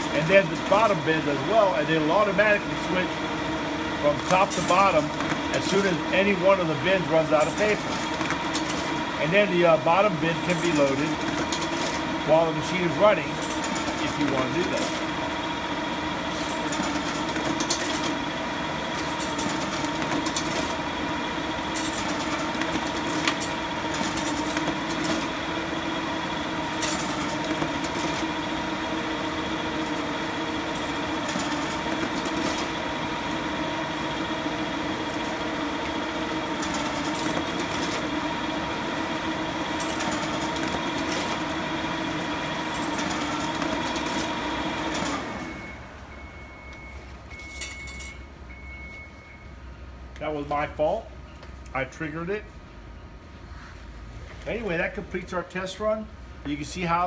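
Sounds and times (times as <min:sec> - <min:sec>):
motor hum: 0:00.0 - 0:46.8
paper sheets rustling and clattering: 0:04.1 - 0:09.0, 0:10.3 - 0:12.1, 0:12.7 - 0:15.1, 0:16.3 - 0:18.2, 0:18.9 - 0:20.8, 0:21.7 - 0:25.4, 0:26.7 - 0:28.4, 0:29.5 - 0:32.8, 0:36.5 - 0:38.3, 0:39.7 - 0:45.4.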